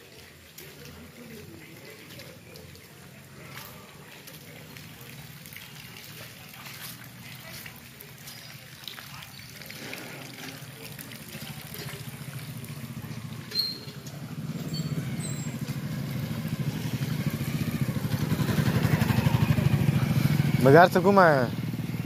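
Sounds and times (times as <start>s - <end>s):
motorcycle engine puttering: 9.7s - 22.0s.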